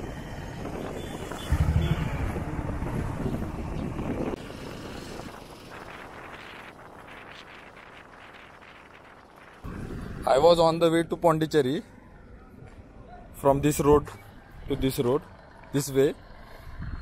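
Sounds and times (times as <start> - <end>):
motorcycle engine running: 0.0 - 7.3
road noise from moving vehicle: 0.0 - 17.0.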